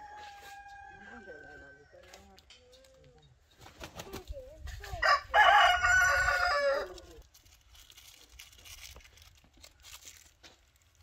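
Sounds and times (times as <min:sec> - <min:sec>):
rooster crowing: 0:00.0 - 0:01.8, 0:05.0 - 0:07.1.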